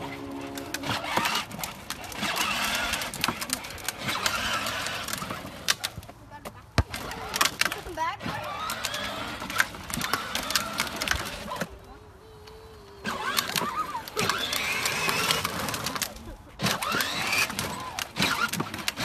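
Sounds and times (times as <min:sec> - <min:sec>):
toy car clattering on pavement: 0:00.4 - 0:19.0
child's voice: 0:11.7 - 0:14.3.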